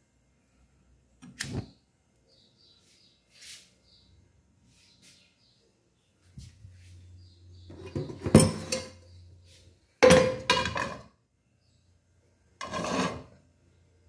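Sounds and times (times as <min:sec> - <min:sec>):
metal pot clanking and rattling: 0:07.7 - 0:09.0, 0:10.0 - 0:11.1.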